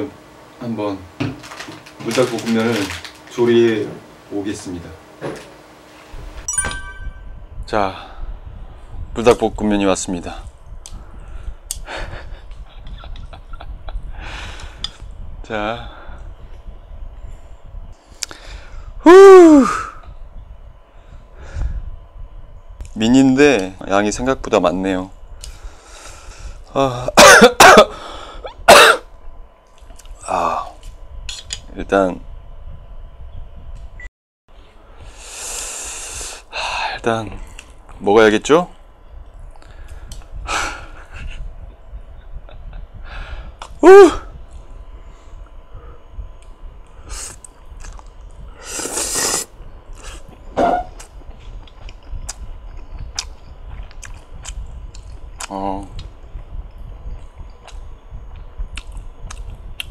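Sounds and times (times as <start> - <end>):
man clearing throat and coughing: 27.0 - 28.0, 28.7 - 29.1
chewing: 47.4 - 48.2, 51.4 - 56.1
man slurping noodles: 48.6 - 50.2.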